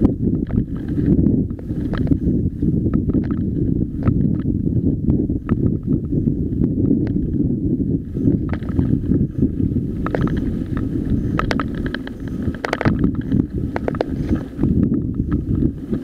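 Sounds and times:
bike rattling and clicking: 0:00.0 - 0:16.0
wind buffeting microphone: 0:00.0 - 0:16.0
tyres crunching on gravel: 0:10.0 - 0:14.7.

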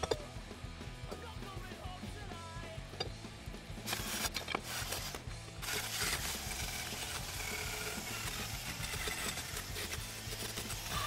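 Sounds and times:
background music: 0:00.0 - 0:11.0
power drill grinding metal: 0:03.8 - 0:11.0.

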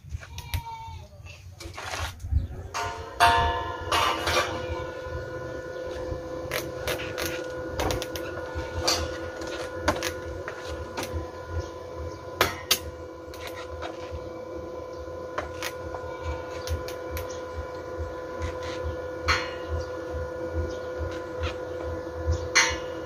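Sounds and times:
steady electrical hum: 0:00.0 - 0:23.0.

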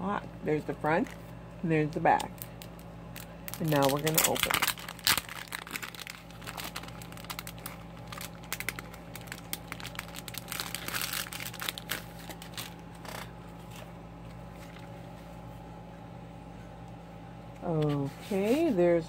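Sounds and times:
steady low hum: 0:00.0 - 0:19.0
plastic wrapper crinkling: 0:02.1 - 0:13.9.

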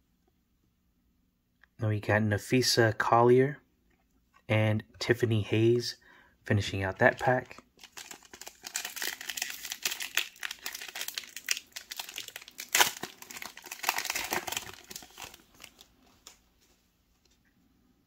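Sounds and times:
foil wrapper tearing and crinkling: 0:07.4 - 0:15.9.

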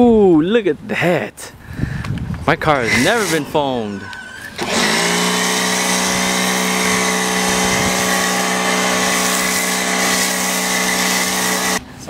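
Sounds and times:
pressure washer motor humming: 0:02.9 - 0:11.8
foam spray hissing: 0:07.6 - 0:11.8.

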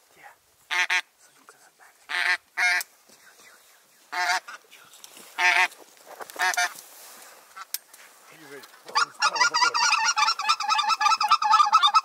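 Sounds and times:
geese honking: 0:00.7 - 0:01.1, 0:02.1 - 0:02.9, 0:04.1 - 0:04.6, 0:05.4 - 0:06.8, 0:08.9 - 0:12.0.

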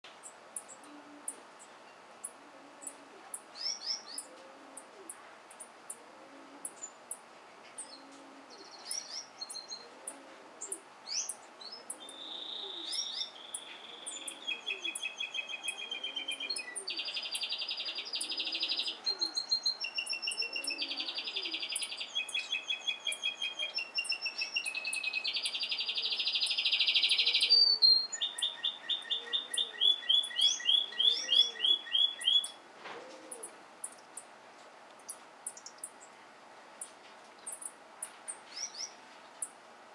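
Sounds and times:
finches chirping and singing: 0:10.6 - 0:32.6.

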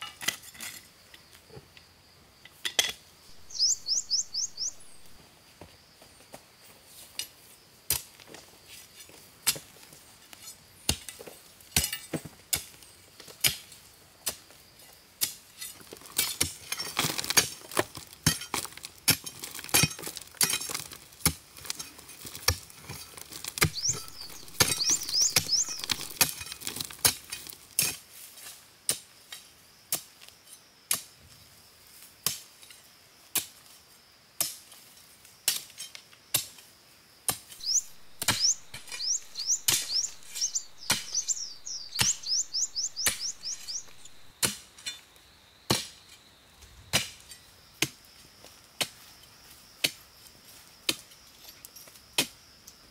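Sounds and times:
bird chirping: 0:03.3 - 0:05.2, 0:23.6 - 0:26.2, 0:37.5 - 0:44.3
hand tool striking wood: 0:23.4 - 0:27.2, 0:37.4 - 0:44.6.

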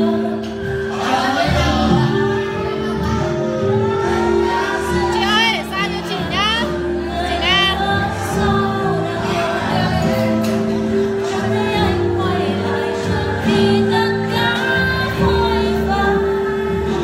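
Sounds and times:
backing track: 0:00.0 - 0:17.0
woman singing karaoke: 0:01.6 - 0:17.0.

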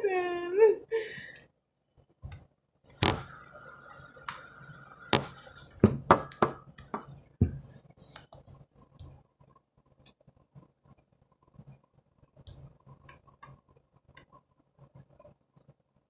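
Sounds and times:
hands knocking on hard device: 0:05.2 - 0:06.6.

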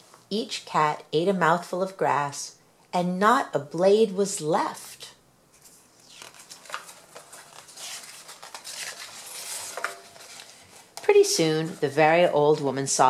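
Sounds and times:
paper page turning: 0:05.5 - 0:12.0.

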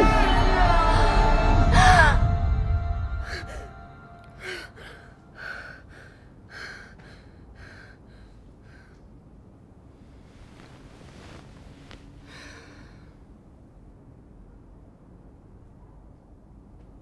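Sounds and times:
film score: 0:00.0 - 0:09.0
woman gasping and breathing hard: 0:03.2 - 0:09.1, 0:12.3 - 0:13.2.

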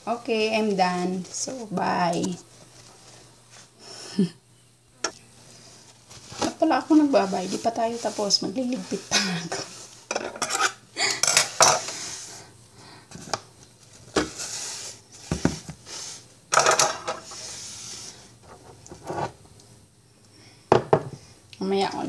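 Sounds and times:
dishes scraping: 0:09.0 - 0:12.2, 0:16.5 - 0:17.6
dishes and utensils clattering: 0:09.2 - 0:12.0, 0:16.5 - 0:17.3.

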